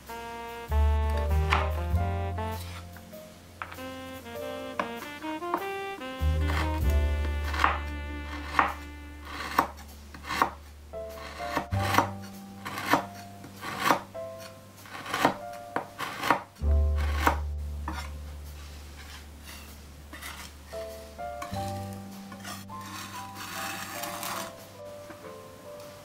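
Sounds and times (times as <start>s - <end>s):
background music: 0.0s - 26.0s
knife chopping on cutting board: 1.2s - 1.8s, 6.4s - 10.6s, 11.2s - 14.1s, 14.8s - 18.1s
knife blade scraping and crushing: 8.4s - 10.6s, 19.0s - 20.6s, 21.4s - 24.6s.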